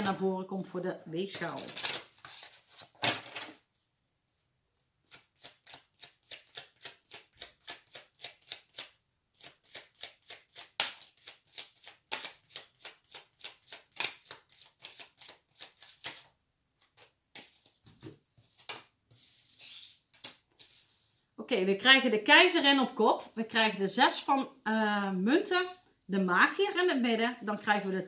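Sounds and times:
cards being shuffled: 9.8 - 20.9.

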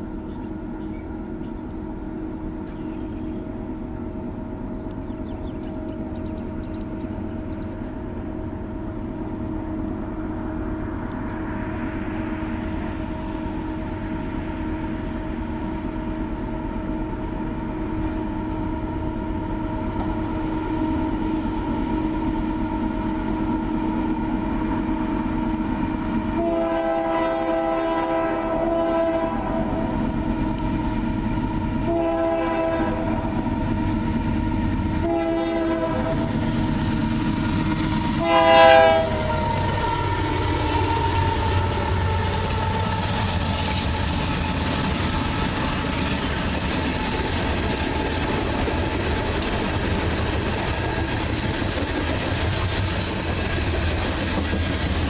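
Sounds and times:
train engine and wheels rumbling: 0.0 - 55.0
locomotive air horn: 26.3 - 30.0, 31.8 - 33.3, 35.0 - 36.4, 38.2 - 42.9.

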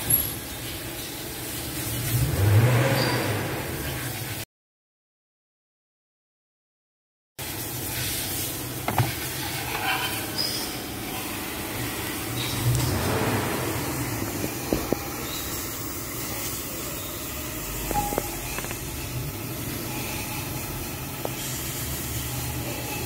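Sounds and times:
low mechanical hum: 7.4 - 23.0.

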